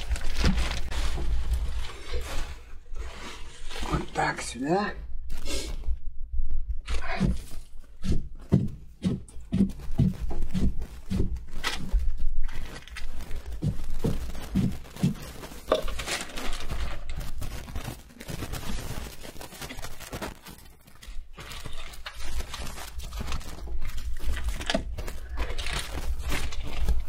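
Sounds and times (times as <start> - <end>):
plastic bag rustling: 0.0 - 4.2, 9.4 - 27.0
items knocking on surface: 13.2 - 18.6.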